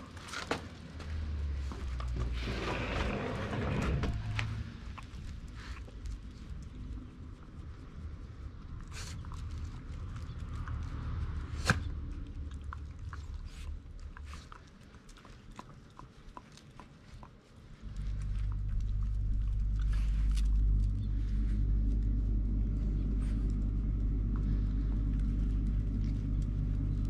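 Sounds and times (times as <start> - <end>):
steady low rumble: 0.0 - 27.0
dog claws clicking on asphalt: 8.7 - 21.0.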